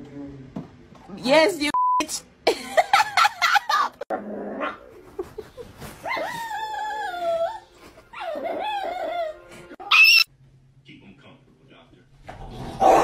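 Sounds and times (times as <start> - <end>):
dog whining: 6.0 - 10.3.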